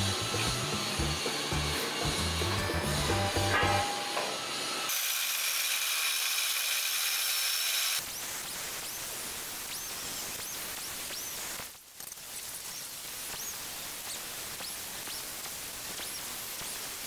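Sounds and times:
angle grinder cutting steel: 0.0 - 8.1.

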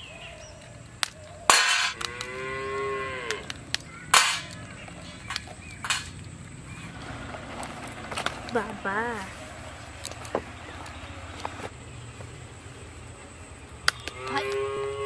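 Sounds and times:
crab legs snapping: 0.4 - 2.4, 3.2 - 6.4, 13.9 - 14.4
cow mooing: 1.8 - 3.5, 14.2 - 15.0.

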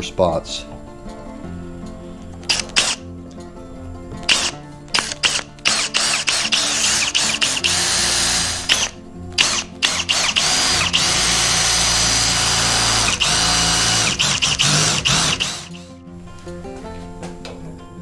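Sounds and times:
cordless drill boring into steel: 2.5 - 3.0, 4.3 - 15.8.

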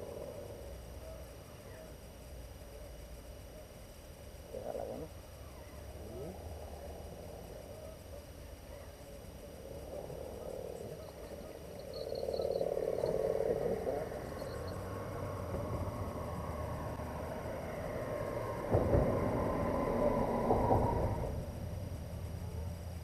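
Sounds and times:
frog trilling: 9.6 - 17.0.

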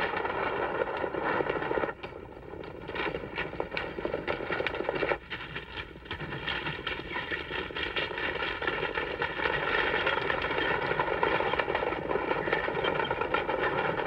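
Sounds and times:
horses galloping: 0.0 - 14.0
stagecoach rattling: 5.9 - 14.0.

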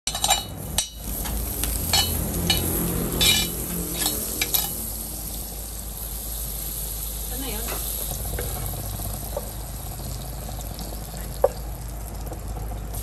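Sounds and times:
hot oil sizzling in a pan: 0.1 - 13.0
spatula scraping a pan: 1.3 - 4.9.

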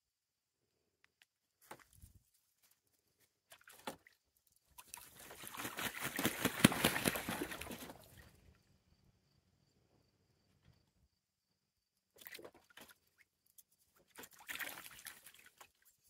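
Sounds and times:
geese splashing in water: 3.5 - 8.4, 12.2 - 13.3, 14.0 - 16.0
wings beating in water: 4.8 - 8.2, 14.0 - 15.9.

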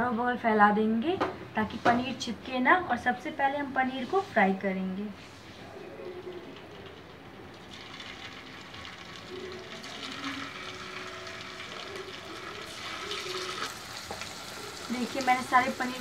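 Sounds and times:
hot oil sizzling in a pan: 7.5 - 16.0.

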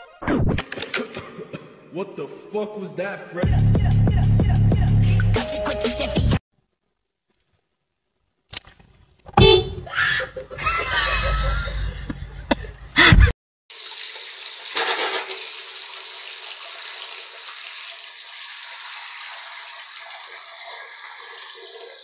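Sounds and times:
tap water filling washbasin: 13.7 - 22.0.

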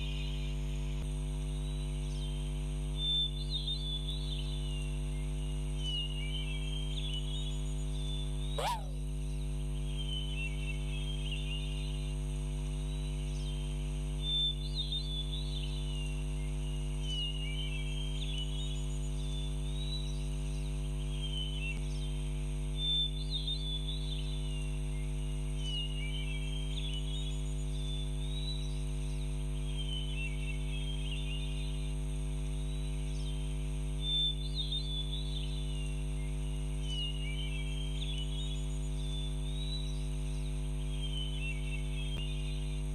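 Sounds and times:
high chirping calls: 8.6 - 9.0.

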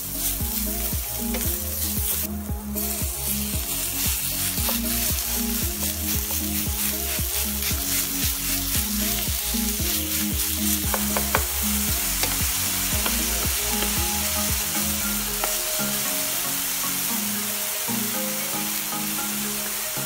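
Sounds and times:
background music: 0.0 - 20.0
meat sizzling in a frying pan: 0.0 - 20.0.

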